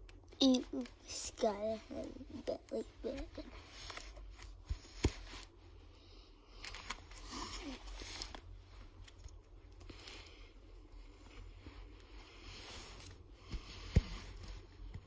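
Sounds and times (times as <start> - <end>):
plastic binder pages crinkling: 2.7 - 5.7, 6.5 - 10.4.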